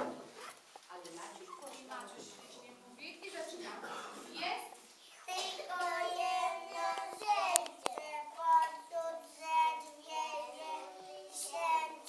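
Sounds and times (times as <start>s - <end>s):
children singing: 5.3s - 12.0s.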